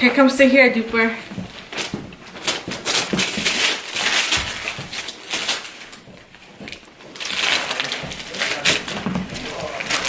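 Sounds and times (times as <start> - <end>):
paper crinkling: 1.4 - 10.0
wrapping paper tearing: 1.7 - 6.0, 6.6 - 10.0.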